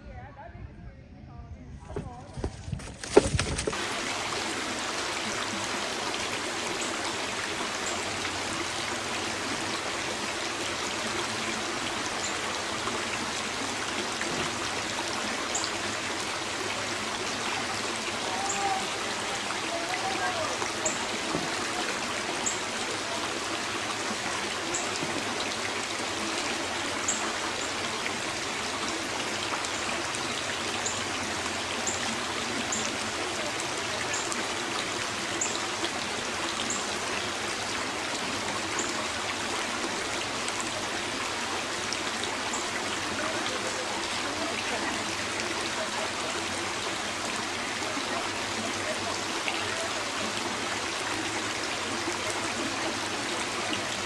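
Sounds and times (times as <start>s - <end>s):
river water rippling over rocks: 1.9s - 54.0s.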